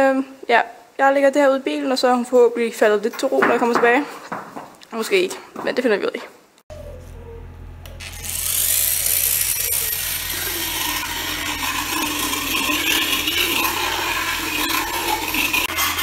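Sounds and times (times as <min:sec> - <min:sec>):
motorized rasp grinding teeth: 0:07.8 - 0:16.0.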